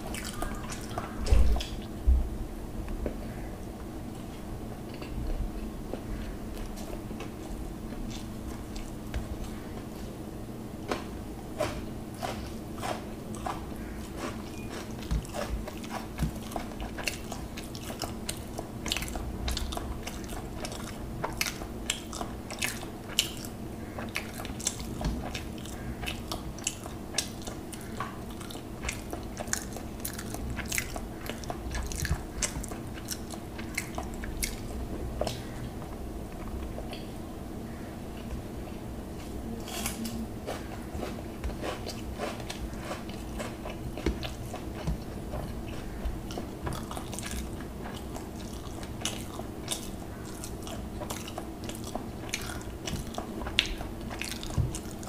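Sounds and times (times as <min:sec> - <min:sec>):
low hum: 0:00.0 - 0:12.0
chewing with wet mouth clicks: 0:12.2 - 0:37.2, 0:41.0 - 0:55.0.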